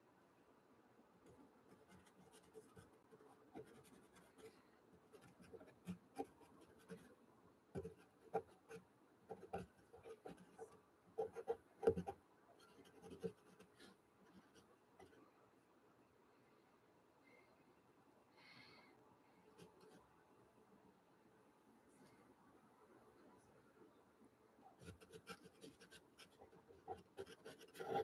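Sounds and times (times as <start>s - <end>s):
pencil scratching on paper: 1.7s - 4.6s, 5.2s - 7.1s, 7.8s - 15.1s, 24.8s - 28.0s
pencil tapping on paper: 11.2s - 12.1s.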